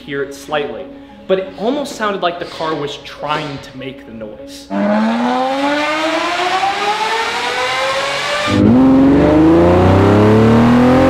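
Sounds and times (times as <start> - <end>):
car engine accelerating: 4.7 - 11.0.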